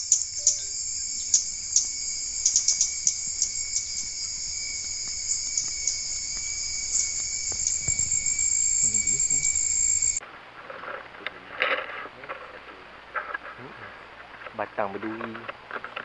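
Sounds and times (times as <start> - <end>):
shrill chorus of insects: 0.0 - 10.2
thin steady whine: 0.0 - 14.5.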